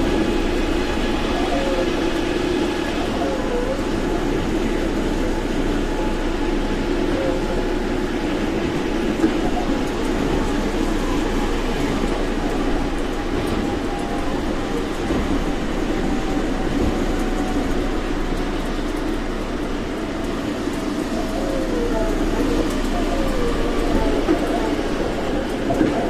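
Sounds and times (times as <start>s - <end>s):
monorail train rumble and hum: 0.0s - 26.0s.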